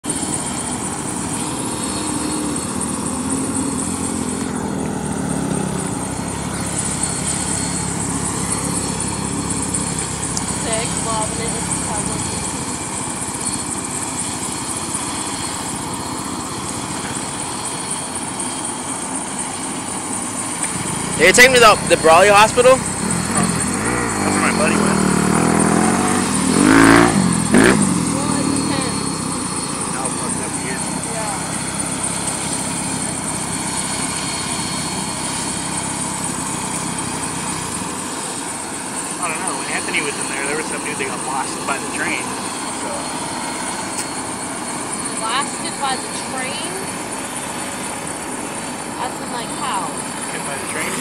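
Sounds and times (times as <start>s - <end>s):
distant helicopter running: 0.0s - 51.0s.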